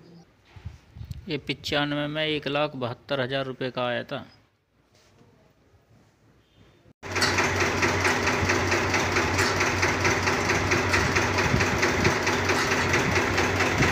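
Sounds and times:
tractor diesel engine idling: 7.0s - 13.9s.

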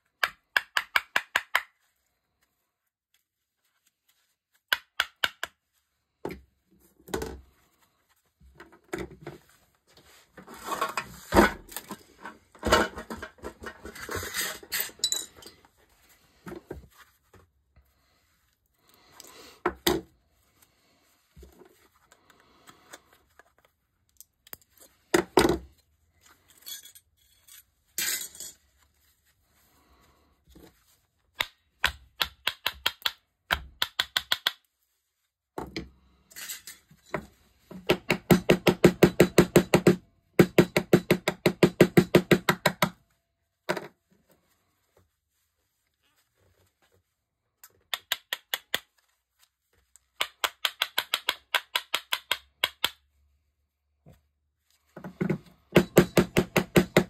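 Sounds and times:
pliers scraping and clinking metal: 26.2s - 28.6s, 36.3s - 36.9s.

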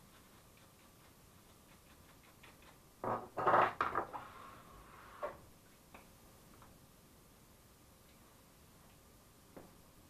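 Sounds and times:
faint regular ticking: 0.0s - 3.0s
knocks and scrapes: 3.0s - 5.4s.

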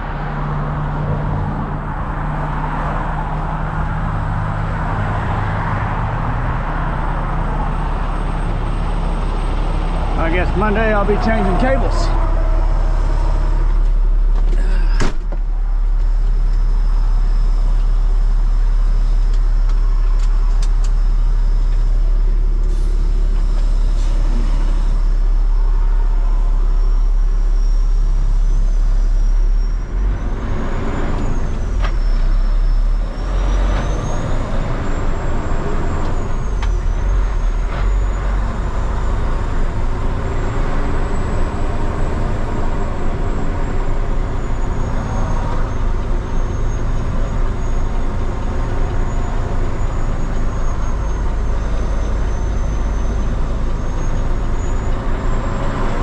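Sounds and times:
diesel engine rumbling: 0.0s - 56.0s
thump: 14.4s - 15.4s.

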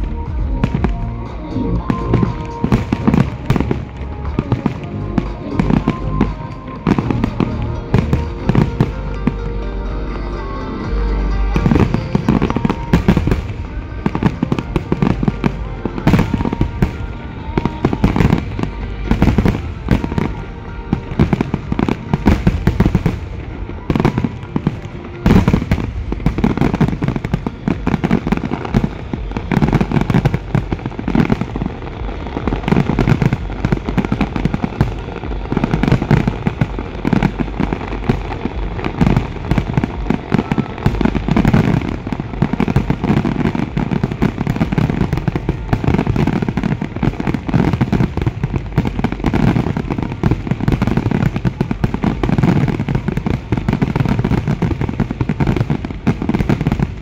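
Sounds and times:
fireworks bangs and crackles: 0.0s - 57.0s
heavy low fireworks booms: 0.0s - 57.0s.

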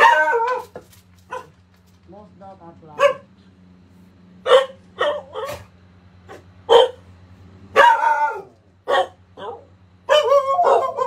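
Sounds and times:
dog barking: 0.0s - 1.6s, 2.9s - 3.4s, 4.4s - 5.7s, 6.3s - 7.1s, 7.7s - 11.0s.

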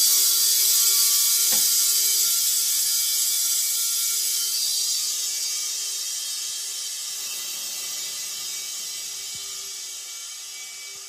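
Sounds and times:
compressed air hissing: 7.0s - 10.0s.

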